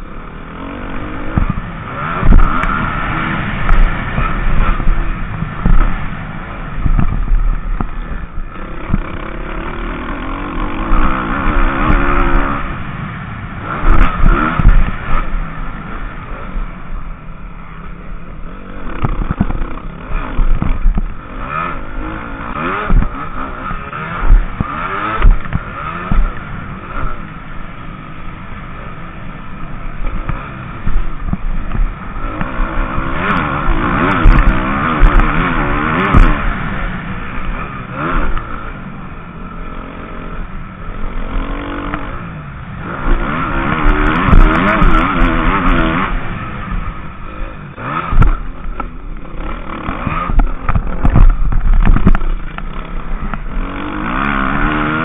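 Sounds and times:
motocross bike engine revving: 0.0s - 55.0s
heavy low thumps: 1.2s - 9.2s, 13.7s - 15.4s, 22.5s - 26.4s, 50.0s - 53.6s.

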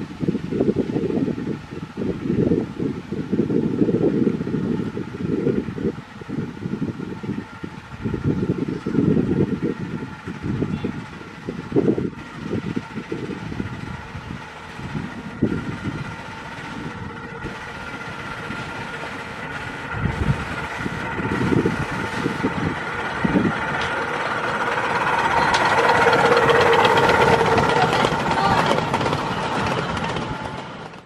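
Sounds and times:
miniature locomotive engine hum: 0.0s - 31.0s.

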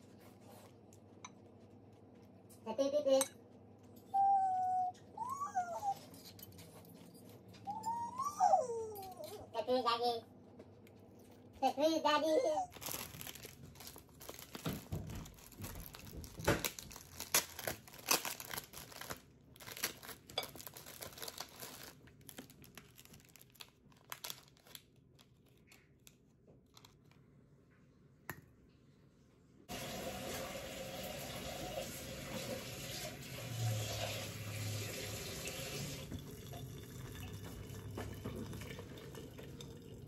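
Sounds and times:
wrapper crinkling and tearing: 12.7s - 27.2s
water pouring into teapot: 29.7s - 40.0s.

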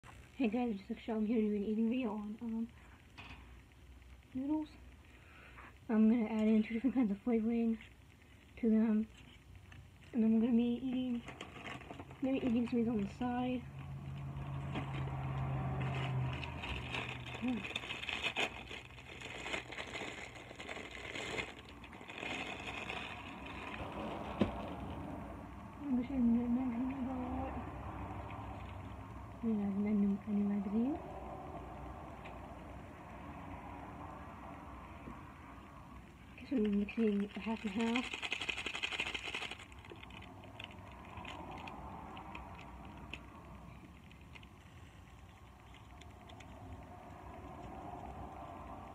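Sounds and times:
instant noodle packet crinkling: 9.0s - 13.2s, 14.1s - 25.0s, 36.4s - 46.8s
dry noodles crunching: 13.8s - 25.0s, 37.1s - 48.2s.

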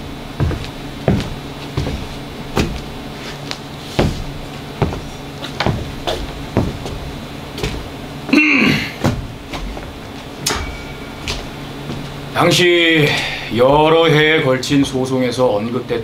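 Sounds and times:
footsteps on stage floor: 0.0s - 8.4s, 9.0s - 12.4s, 13.2s - 14.1s.

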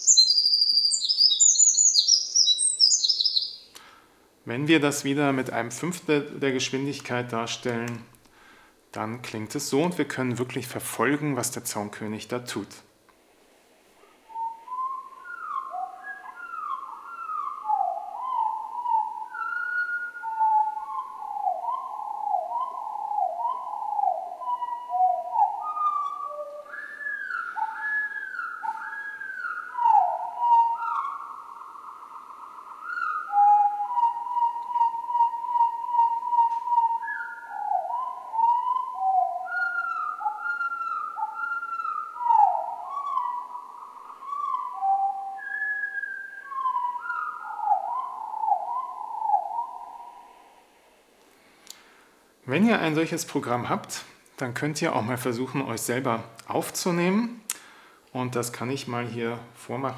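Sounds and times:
slowed bird song whistles: 0.0s - 4.0s, 14.0s - 51.1s.

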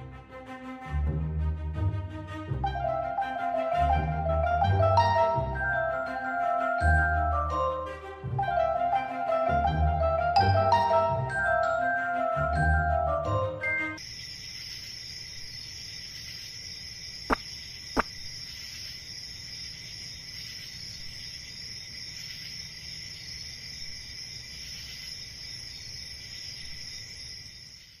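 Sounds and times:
music cue: 2.4s - 14.0s
crickets chirping: 14.0s - 28.0s.

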